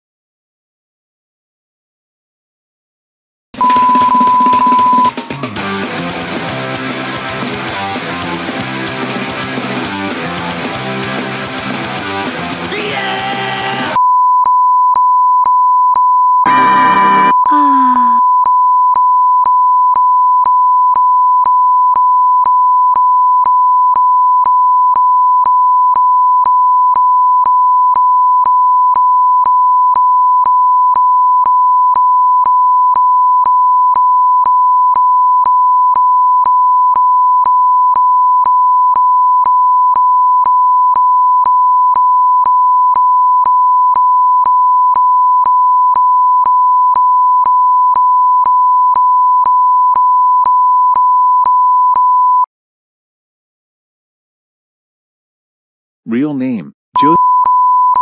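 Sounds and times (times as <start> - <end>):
censor bleep: 3.6 - 5.3, 14.0 - 17.6, 18.2 - 52.5, 57.0 - 58.0
music: 3.6 - 14.0.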